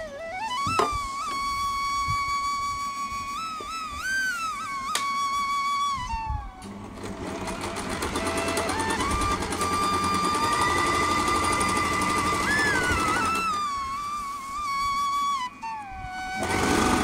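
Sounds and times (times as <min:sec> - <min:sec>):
background music with held notes: 0:00.0 - 0:17.0
electric sewing machine stitching: 0:06.6 - 0:13.7, 0:16.4 - 0:17.0.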